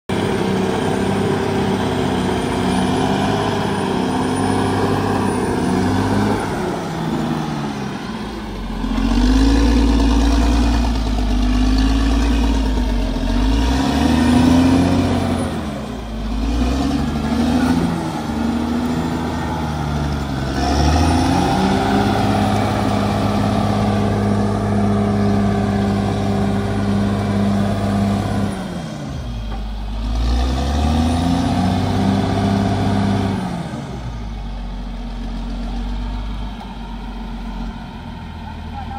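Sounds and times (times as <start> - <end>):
bulldozer diesel engine revving: 0.1 - 38.9.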